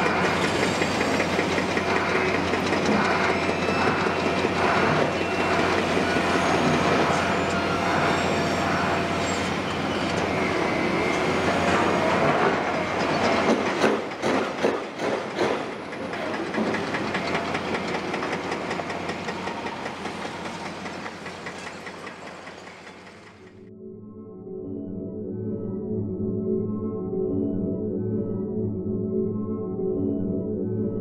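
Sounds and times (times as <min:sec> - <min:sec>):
excavator diesel engine din: 0:00.0 - 0:23.6.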